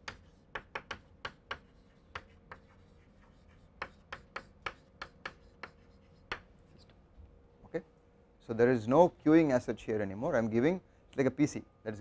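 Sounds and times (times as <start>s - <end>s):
chalk tapping on a blackboard: 0.0s - 6.8s.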